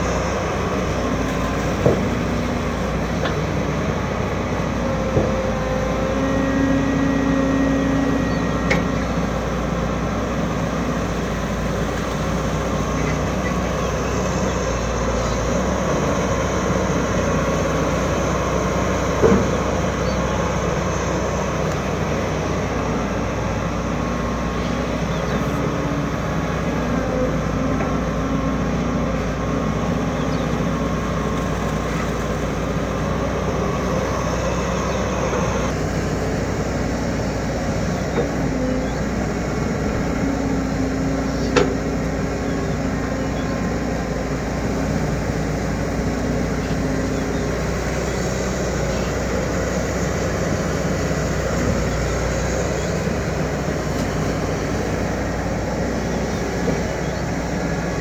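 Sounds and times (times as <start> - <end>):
excavator engine working: 0.0 - 58.0
water pump engine: 0.0 - 58.0.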